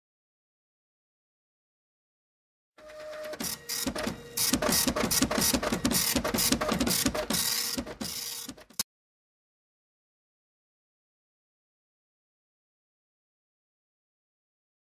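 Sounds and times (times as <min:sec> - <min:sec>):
desktop printer printing: 0:02.8 - 0:08.8.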